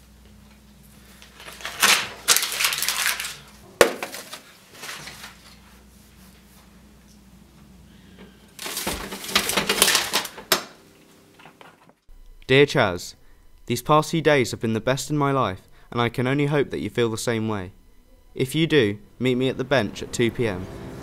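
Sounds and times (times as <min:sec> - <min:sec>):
paper rustling and crackling: 0:01.1 - 0:06.5, 0:08.6 - 0:12.0.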